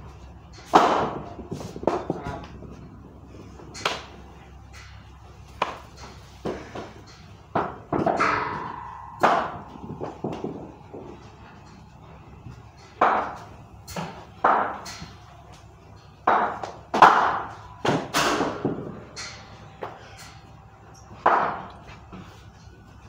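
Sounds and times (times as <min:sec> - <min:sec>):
ball hitting wooden bat: 0:05.6 - 0:05.8, 0:07.5 - 0:11.2, 0:13.0 - 0:13.4, 0:14.0 - 0:14.9, 0:16.2 - 0:18.9
bat tapping the floor: 0:07.5 - 0:11.3.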